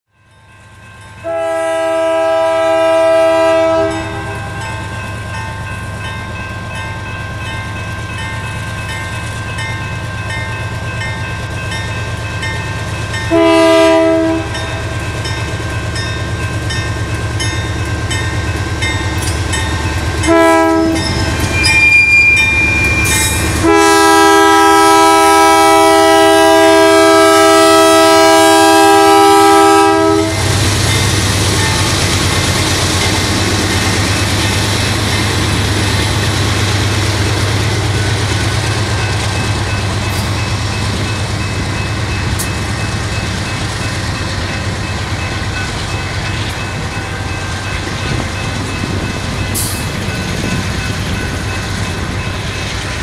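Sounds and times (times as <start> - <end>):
locomotive horn blasts: 1.2 - 4.7, 13.3 - 14.9, 20.2 - 21.2, 23.6 - 30.6.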